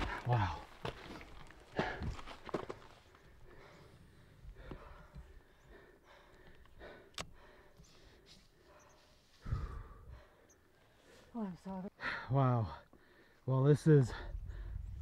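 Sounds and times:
person breathing: 3.2 - 11.4, 12.0 - 13.4.

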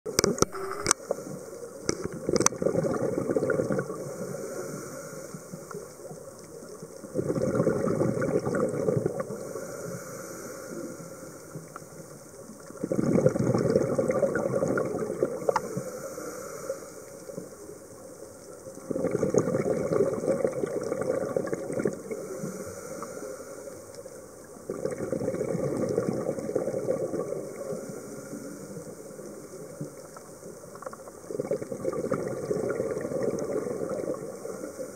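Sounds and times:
underwater exhaled bubbles rumbling: 0.1 - 4.5, 5.5 - 9.6, 11.5 - 15.8, 18.6 - 23.1, 24.4 - 34.7
underwater water noise: 0.1 - 34.9.

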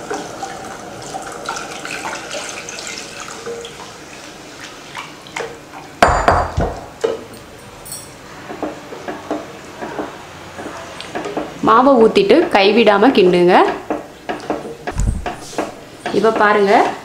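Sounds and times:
loud knocks: 14.9 - 15.8.

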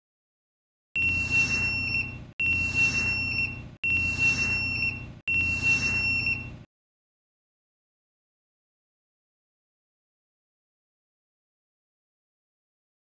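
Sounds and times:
long high alarm beeps: 1.0 - 6.6.

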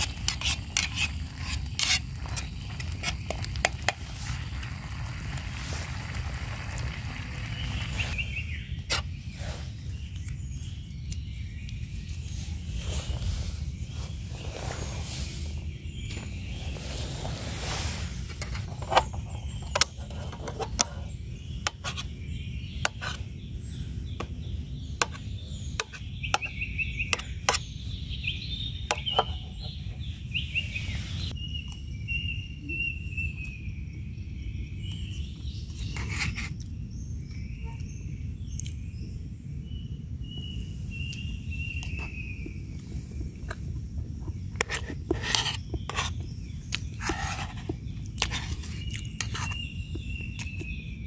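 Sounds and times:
metal spoon scraping metal pot: 0.0 - 4.0
steady low rumble: 0.0 - 17.2.

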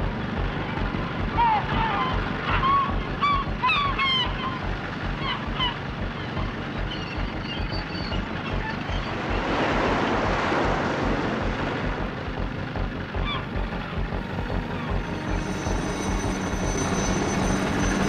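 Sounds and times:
birds calling: 0.1 - 11.6, 12.7 - 18.0
surf: 0.2 - 14.1
wave surging: 8.5 - 12.5.

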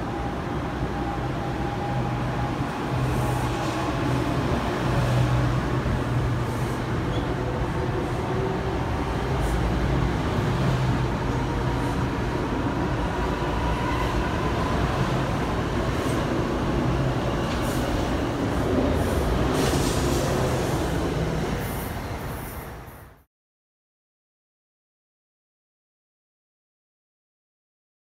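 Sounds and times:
train passing at speed: 0.0 - 23.3.

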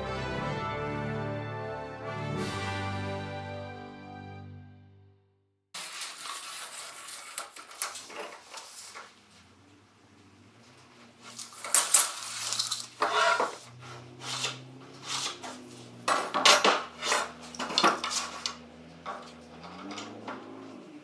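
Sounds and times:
metal tools clattering on wood: 11.3 - 14.0, 15.1 - 20.6.

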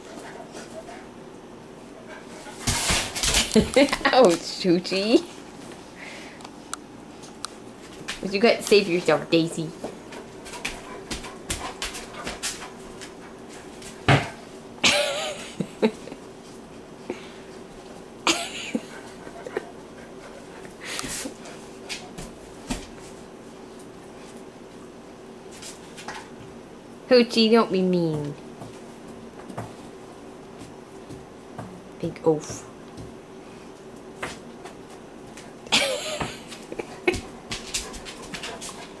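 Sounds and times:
paws clicking and tapping: 9.8 - 14.0, 36.5 - 39.0.

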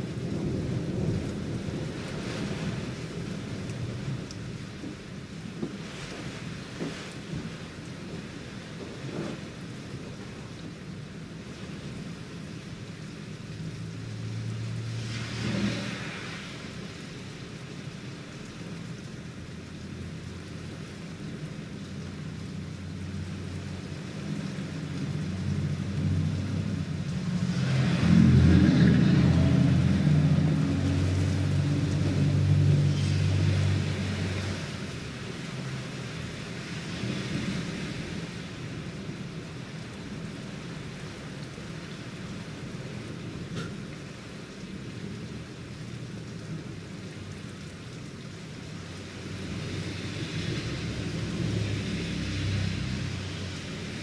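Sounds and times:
low rumble of thunder: 0.0 - 11.4, 21.2 - 34.7
steady rain: 0.0 - 54.0
tyres hissing on wet road: 0.0 - 54.0.

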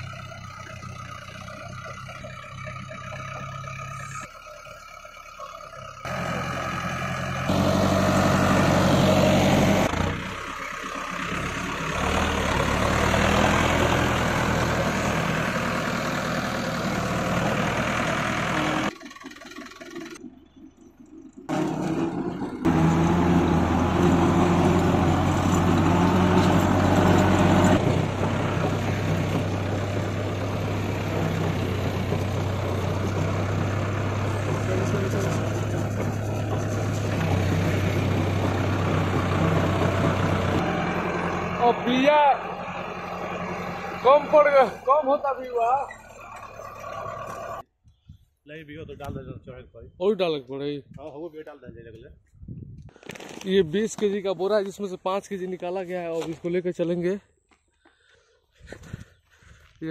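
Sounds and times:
tractor engine running: 0.0 - 47.7.

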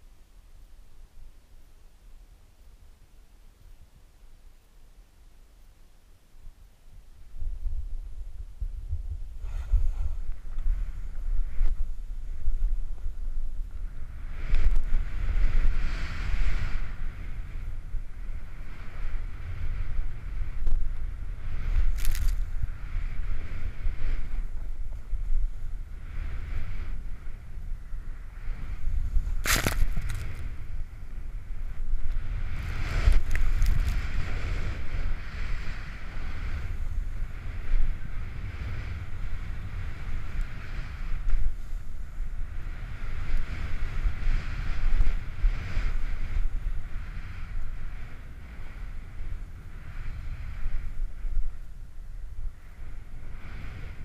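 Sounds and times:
wind rumbling on microphone: 0.0 - 54.0
board hissing over snow: 9.3 - 51.8.

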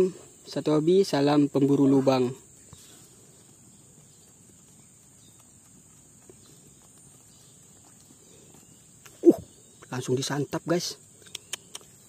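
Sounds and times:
high-pitched insect drone: 9.1 - 9.6
small click: 11.2 - 11.9.

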